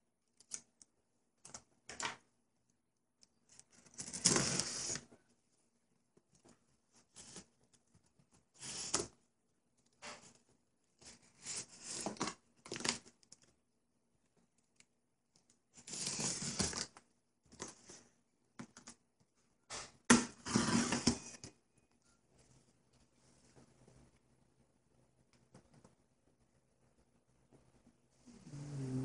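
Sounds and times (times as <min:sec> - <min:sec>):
cardboard box being cut: 0:20.4 - 0:21.1.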